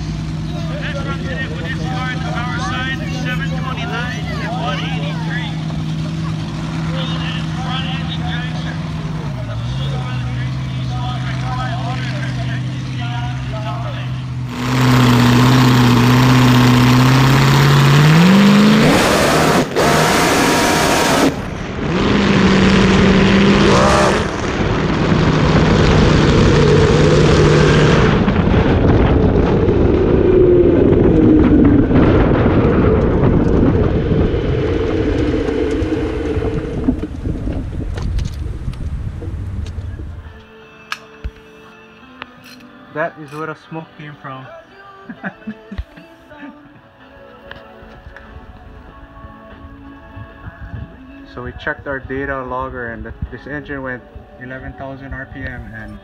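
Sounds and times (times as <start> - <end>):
dragster engine revving: 0.0 - 39.6.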